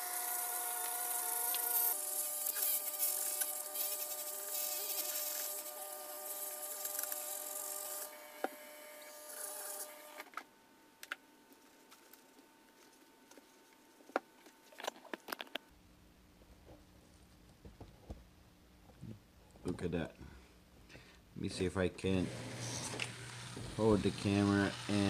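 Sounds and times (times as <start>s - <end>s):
rotary tool high whine: 0.0s - 10.4s, 22.1s - 25.0s.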